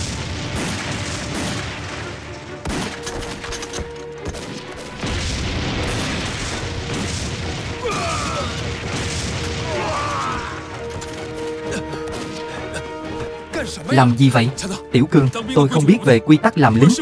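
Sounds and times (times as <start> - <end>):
booming explosions: 0.0 - 3.0, 4.4 - 12.5
gunfire: 0.0 - 12.5
background music: 0.0 - 17.0.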